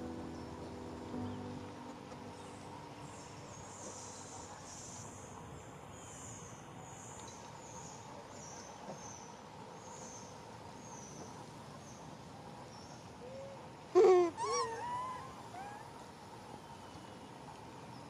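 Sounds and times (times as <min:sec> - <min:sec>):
macaque squealing: 0:14.3 - 0:15.8.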